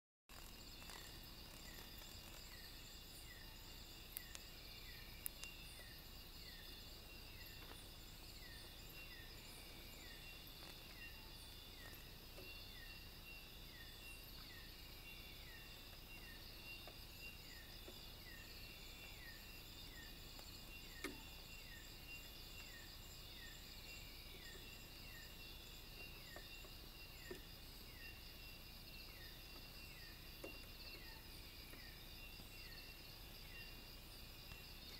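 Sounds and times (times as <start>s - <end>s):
insects trilling: 0.3s - 34.9s
short falling insect call: 0.3s - 34.9s
faint clicks: 4.1s - 4.5s, 5.2s - 5.6s.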